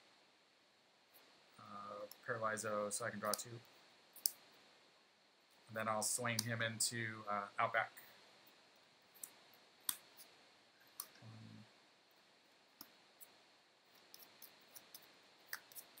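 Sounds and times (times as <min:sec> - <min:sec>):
cards and counters clicking on table: 0:14.0 - 0:16.0.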